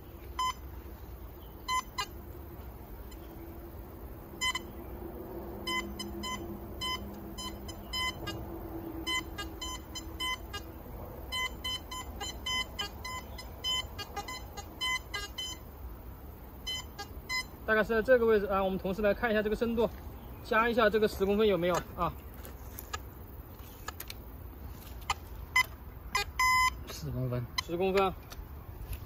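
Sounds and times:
metal detector beeps: 0.4 - 0.6, 1.6 - 2.2, 4.4 - 4.8, 5.6 - 8.4, 9.0 - 10.7, 11.3 - 15.7, 16.6 - 17.6, 25.0 - 27.0.

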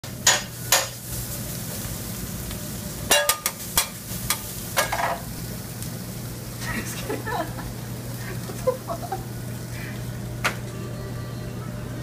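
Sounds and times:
meat sizzling on griddle: 0.0 - 11.1
metal spatula clacking on griddle: 0.2 - 1.0, 3.1 - 5.2
low hum: 8.9 - 12.0.

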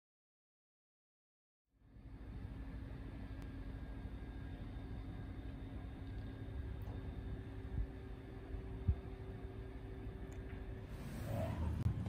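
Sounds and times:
faint hum: 1.7 - 12.0
low rumble: 4.6 - 12.0.

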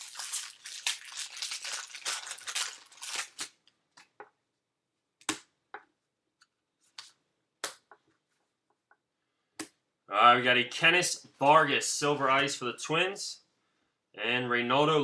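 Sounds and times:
foil wrapper tearing and crinkling: 0.0 - 3.6.

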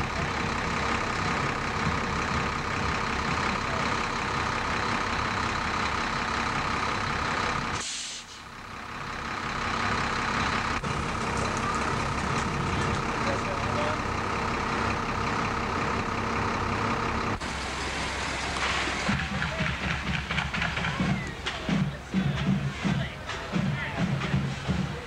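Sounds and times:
fire engine idling: 0.0 - 25.0
air brake hiss: 7.8 - 8.5.

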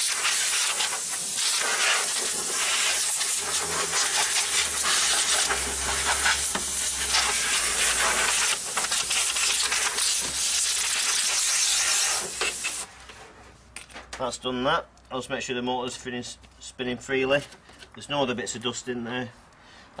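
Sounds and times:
compressed air hissing: 0.0 - 12.9.

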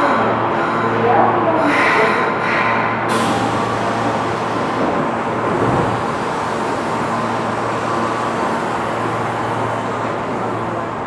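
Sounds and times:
station noise: 0.0 - 11.0
subway train humming: 0.0 - 11.0.

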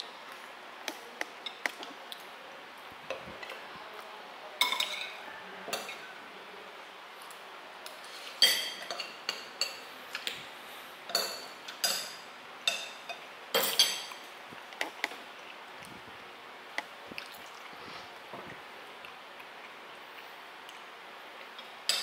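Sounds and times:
cutlery clinking on ceramic plates: 4.6 - 6.0, 8.3 - 10.3, 11.1 - 14.3.

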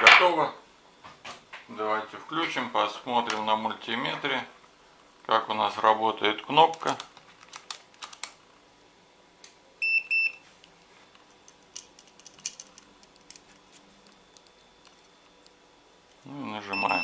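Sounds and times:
test leads handled clicking: 6.7 - 8.4, 10.6 - 16.2
short high-pitched beeps: 16.7 - 17.0.

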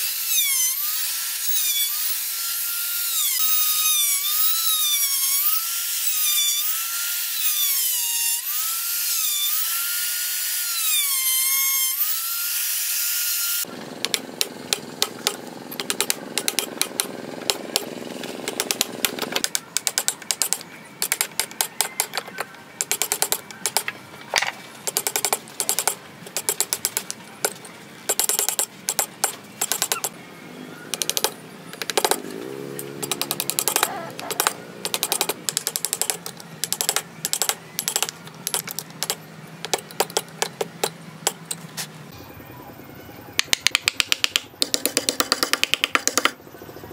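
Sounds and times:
rotary tool whining in wood: 0.0 - 23.8
chisel cutting wood: 0.0 - 23.9, 33.0 - 41.5.

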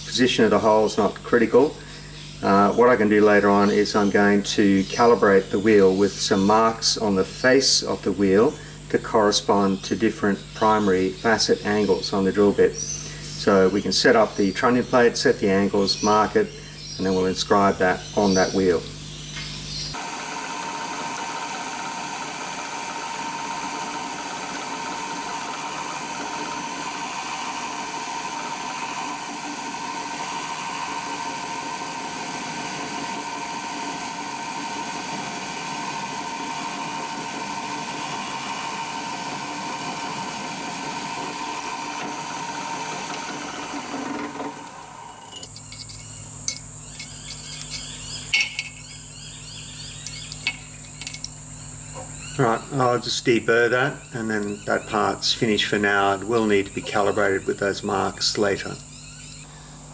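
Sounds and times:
drill press drilling metal: 20.0 - 48.8.

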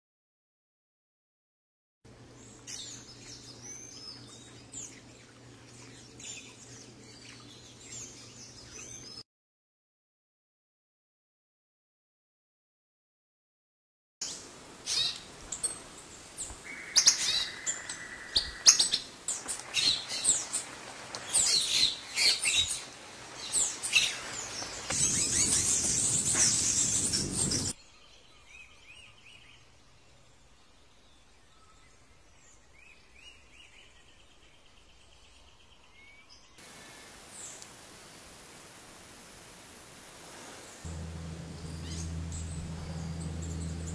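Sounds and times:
birds chirping and calling: 14.9 - 27.8, 40.9 - 43.9
soft bird trill: 21.2 - 27.8, 40.9 - 43.9
loud high hiss: 22.4 - 27.8, 36.6 - 43.9.

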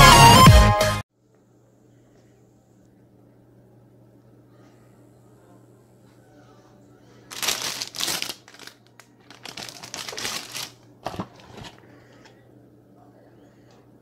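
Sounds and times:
packaging crinkling: 7.3 - 11.8.

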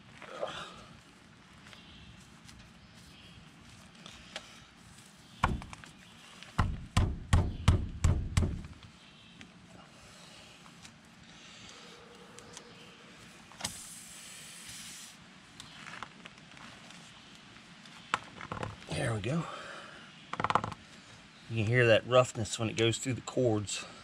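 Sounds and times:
reamer thump on tire: 5.4 - 5.8, 6.6 - 8.7
short air hiss: 13.6 - 15.3.

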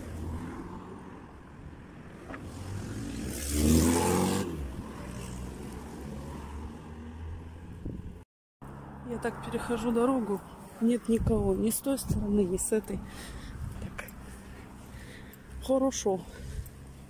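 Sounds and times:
street traffic hum: 0.0 - 17.0
car driving past: 2.1 - 7.7.

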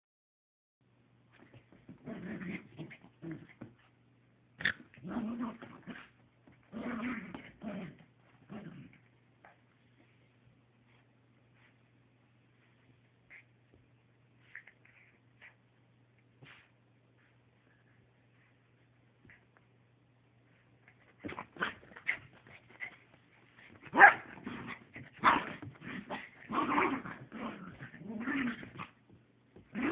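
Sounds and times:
small dog play-growling: 1.3 - 3.9, 4.6 - 9.7, 14.4 - 15.6, 20.8 - 29.9.

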